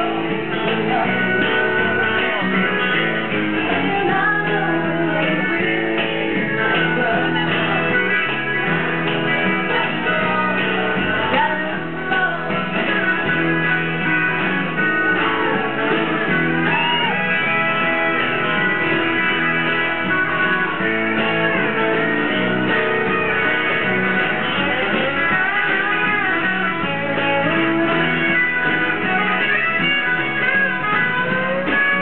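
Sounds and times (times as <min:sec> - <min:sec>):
woman singing: 0:00.0 - 0:02.7, 0:03.5 - 0:14.0
electric bass: 0:00.0 - 0:32.0
strummed acoustic guitar: 0:00.0 - 0:32.0.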